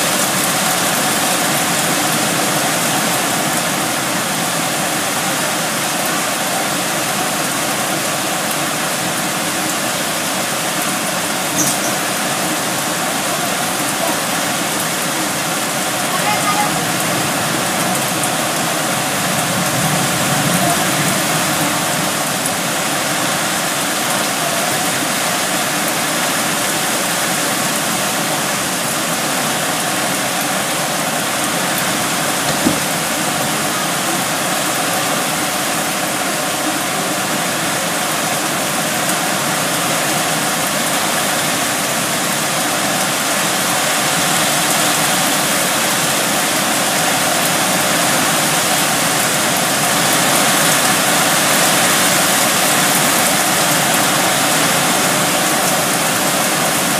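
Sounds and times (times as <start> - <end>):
heavy rain pouring: 0.0 - 56.9
brief knock: 32.5 - 32.9.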